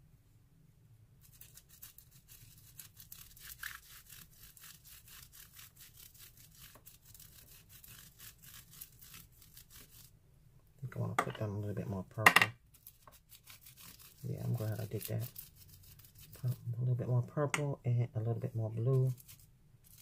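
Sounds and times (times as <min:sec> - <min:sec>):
crayon rubbing on bubble wrap: 0:01.2 - 0:10.1, 0:12.7 - 0:16.8, 0:18.4 - 0:20.0.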